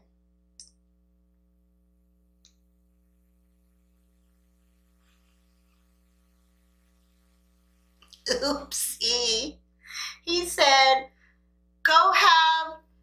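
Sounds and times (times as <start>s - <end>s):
faint electrical hum: 0.0s - 13.0s
faint click: 2.4s - 2.6s.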